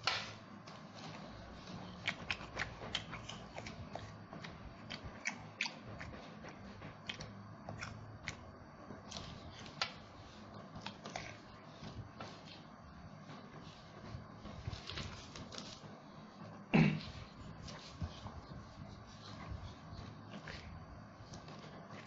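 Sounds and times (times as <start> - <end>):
faint low hum: 0.0 - 22.0
person chewing food: 1.7 - 8.4.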